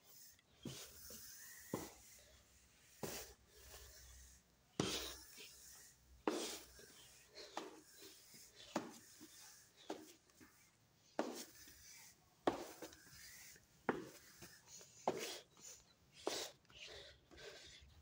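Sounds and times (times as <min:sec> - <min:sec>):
slow footsteps on steps: 0:06.2 - 0:10.6, 0:12.4 - 0:15.5.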